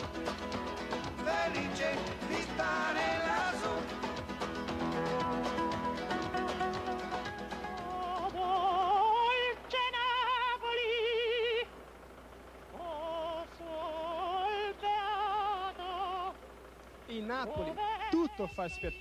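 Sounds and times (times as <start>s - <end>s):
operatic singing: 1.0s - 6.8s.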